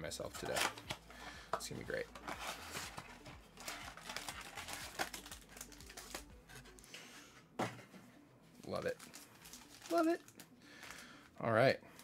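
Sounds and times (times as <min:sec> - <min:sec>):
card packs rustling and crinkling: 0:00.2 - 0:07.1, 0:08.6 - 0:11.3.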